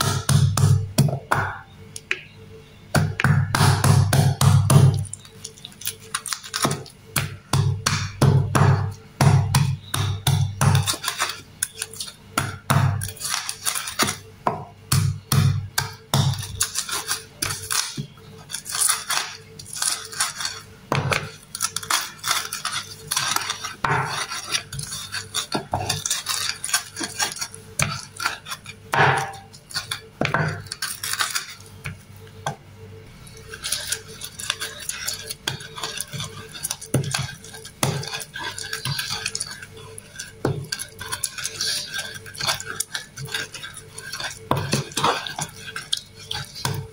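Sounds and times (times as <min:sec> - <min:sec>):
pestle pounding in wooden mortar: 0:00.0 - 0:01.6, 0:03.0 - 0:05.2, 0:06.6 - 0:11.2, 0:12.3 - 0:18.2, 0:20.9 - 0:21.8, 0:22.5 - 0:29.5, 0:33.5 - 0:46.9.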